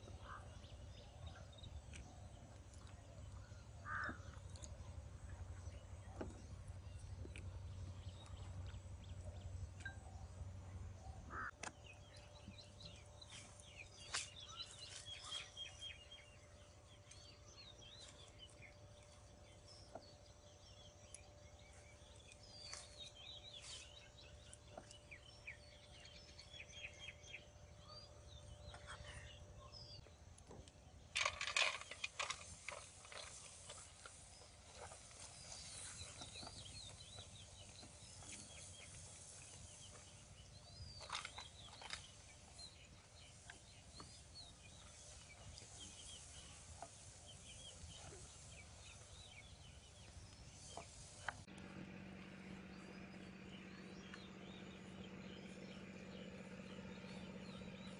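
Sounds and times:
birds chirping and calling: 0.0 - 18.7, 31.5 - 51.4, 52.3 - 57.9.

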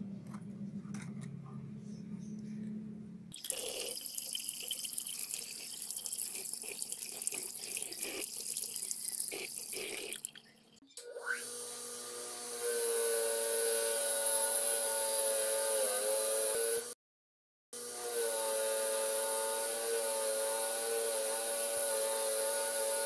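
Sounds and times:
water running from tap: 3.4 - 10.7.

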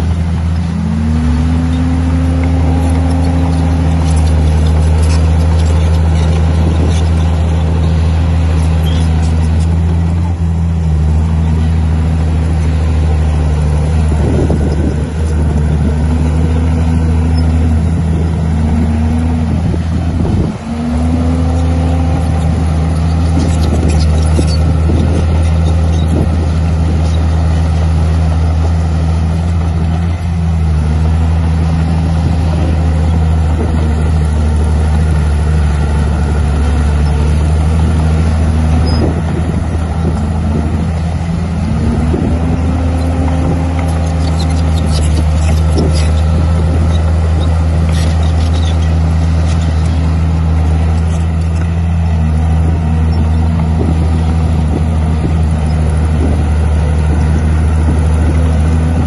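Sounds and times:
bulldozer diesel engine under load: 0.0 - 59.0.

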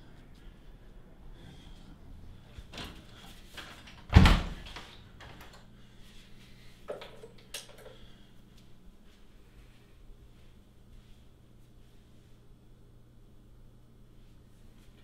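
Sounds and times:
door shutting with heavy thud: 4.0 - 4.8.

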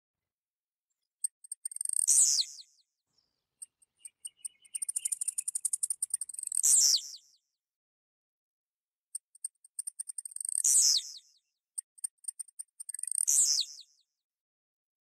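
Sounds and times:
bird singing buzzy notes and ticks: 1.0 - 7.4, 9.1 - 14.0.

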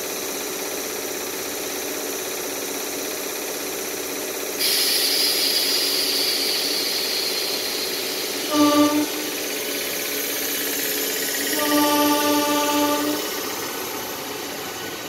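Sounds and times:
train electrical hum: 0.0 - 15.0
hiss of air: 4.6 - 15.0
two-part horn-like tone: 8.5 - 10.0, 11.4 - 14.2.

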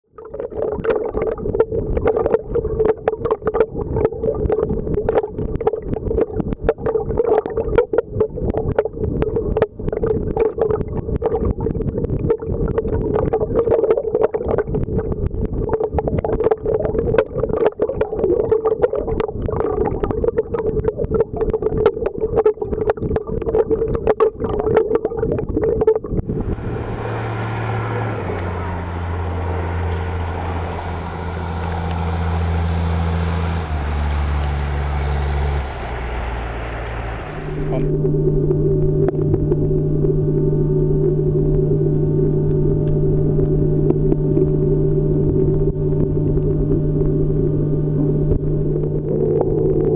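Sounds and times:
underwater hum: 0.0 - 49.9
crackling clicks underwater: 0.1 - 26.3, 38.0 - 44.6, 45.2 - 47.5, 48.3 - 49.9
even hiss: 26.3 - 37.9.

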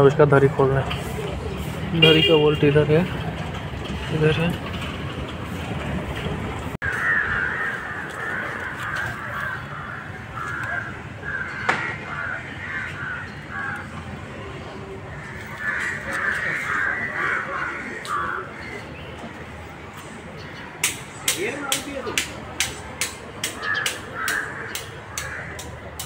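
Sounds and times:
crows cawing: 6.8 - 13.9, 15.1 - 19.1, 23.4 - 26.0.

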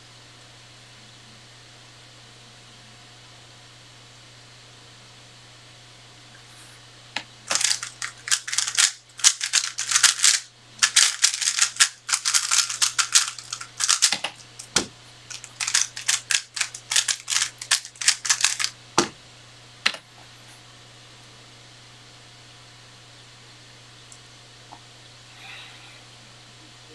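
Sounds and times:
puzzle cube turning clicks: 7.5 - 18.7
dull thump: 19.0 - 19.2.

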